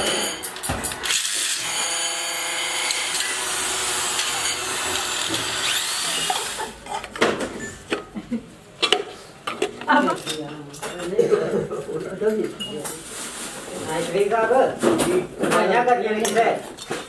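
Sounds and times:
electric motor whining: 0:00.0 - 0:06.6.

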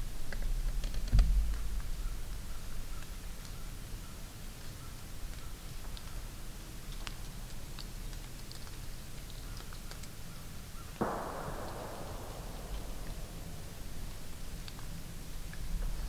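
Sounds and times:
distant gunshot echoing: 0:11.0 - 0:15.1
low steady rumble: 0:11.0 - 0:16.0.

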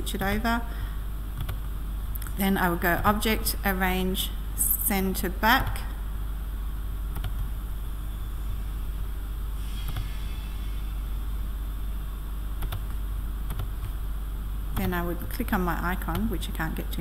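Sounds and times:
low hum and hiss: 0:00.0 - 0:17.0
computer mouse clicks: 0:07.1 - 0:07.5, 0:12.6 - 0:14.0.

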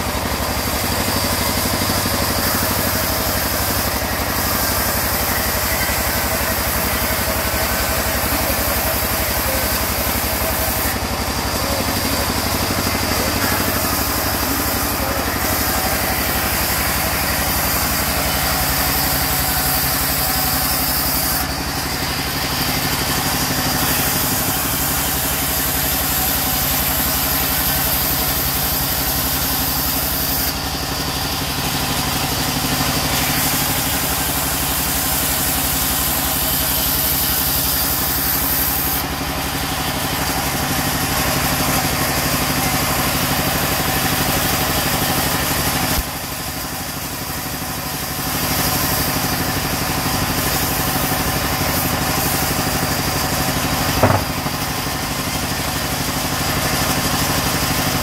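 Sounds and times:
steady machine drone: 0:00.0 - 0:45.1, 0:45.8 - 0:58.0
band saw ripping wood: 0:53.7 - 0:54.9.

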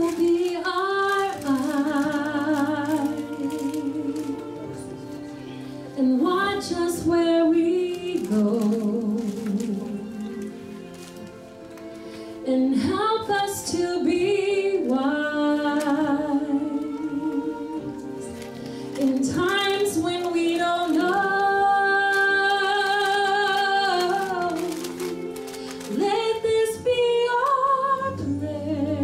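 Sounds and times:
instrumental accompaniment: 0:00.0 - 0:29.0
woman singing slow song: 0:06.0 - 0:10.3, 0:12.4 - 0:18.2, 0:19.0 - 0:29.0.

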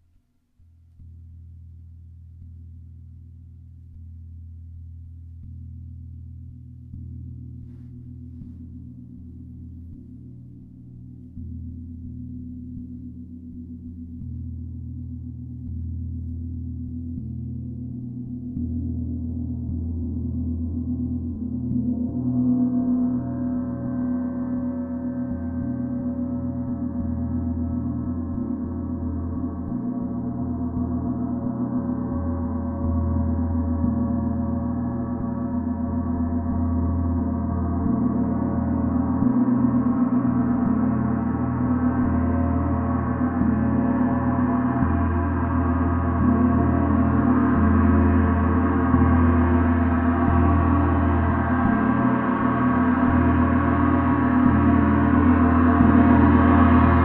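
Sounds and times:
gong played continuously: 0:18.8 - 0:57.0.

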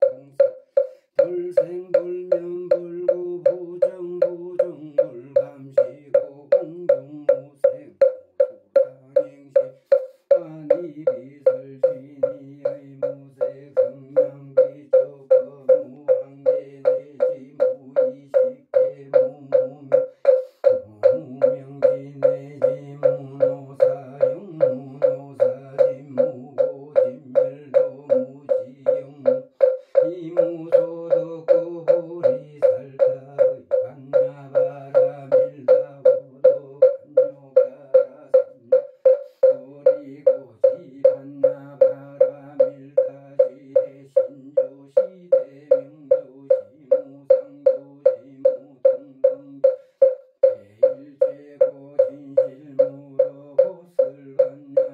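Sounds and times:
man chanting: 0:00.0 - 0:49.8, 0:50.4 - 0:54.9
wooden fish knocking: 0:00.0 - 0:54.9.

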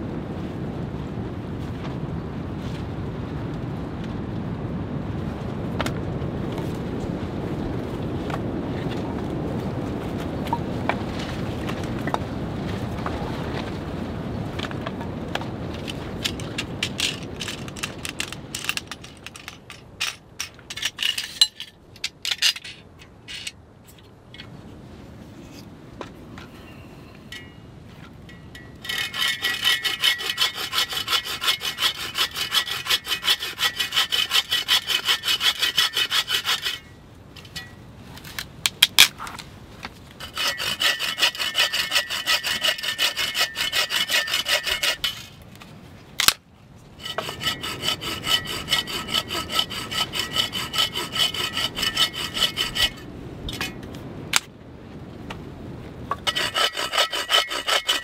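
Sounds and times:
saw cutting through branch: 0:28.8 - 0:36.9, 0:40.2 - 0:45.3, 0:47.0 - 0:53.0, 0:56.2 - 0:58.0.

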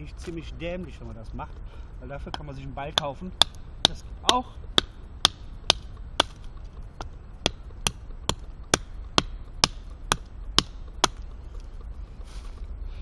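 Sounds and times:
knife chopping into wood: 0:02.3 - 0:06.4.

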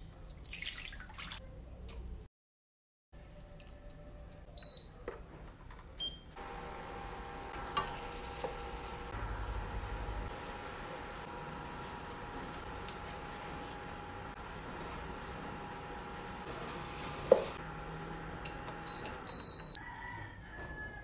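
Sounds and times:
pan hum and hiss heating: 0:06.4 - 0:19.2.

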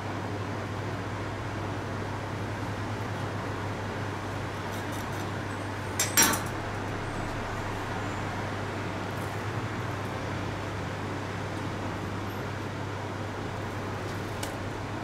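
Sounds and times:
fan hum with hiss: 0:00.0 - 0:15.0
metal kitchenware clinks: 0:06.0 - 0:06.5.

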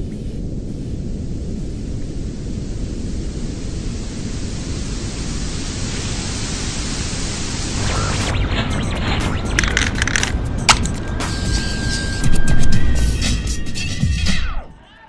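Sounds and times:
television static hiss: 0:00.0 - 0:10.4
low rumble: 0:00.0 - 0:12.4.

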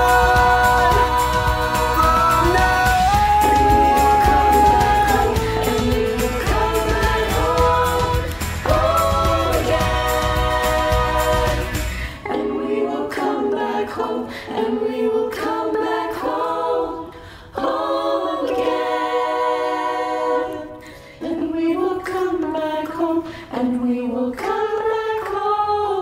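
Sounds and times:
backing track with bass beat: 0:00.0 - 0:12.1
choir singing a cappella: 0:00.0 - 0:26.0.

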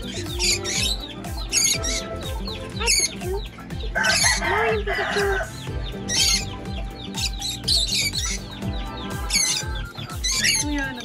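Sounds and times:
parrot squawk: 0:00.0 - 0:03.3, 0:03.9 - 0:10.7
background music with steady beat: 0:00.0 - 0:11.0
parrots chirping: 0:00.0 - 0:11.0.

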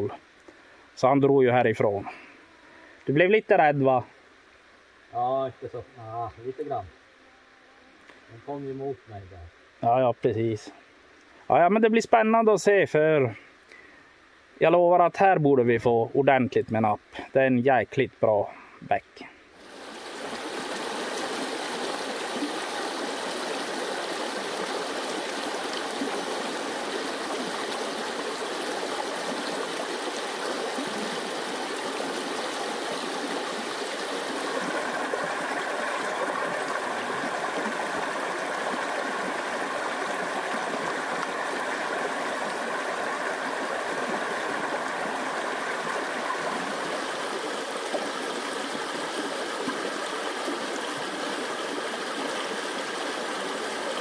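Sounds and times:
stream flowing over rocks: 0:19.5 - 0:54.0.

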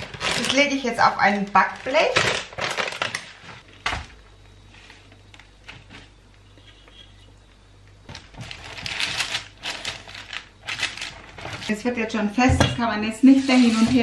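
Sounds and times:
low steady hum: 0:00.0 - 0:14.0
spatula scraping on baking paper: 0:13.2 - 0:14.0.

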